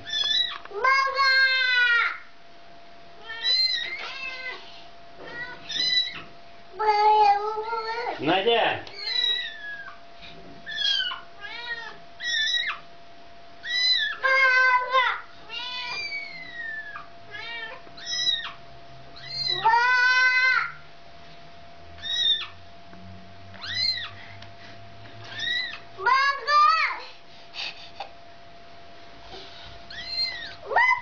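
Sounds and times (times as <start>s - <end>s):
mother cat meowing: 3.2s - 6.2s, 8.9s - 10.0s, 10.7s - 12.8s, 13.6s - 18.6s, 19.2s - 20.7s
kitten mewing: 3.2s - 8.2s, 8.9s - 10.0s, 10.6s - 12.8s, 13.6s - 18.6s, 19.2s - 20.7s, 22.0s - 22.6s, 23.6s - 24.2s, 25.3s - 25.8s, 29.9s - 31.0s.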